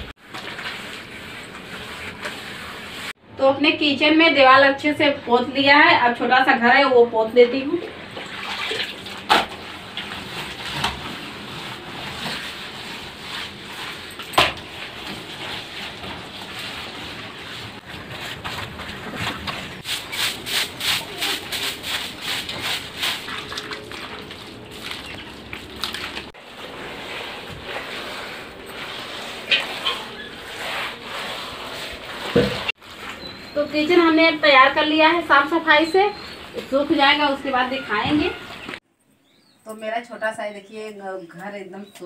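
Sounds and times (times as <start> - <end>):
wet cloth scrubbing plaster: 8.4 - 33.8.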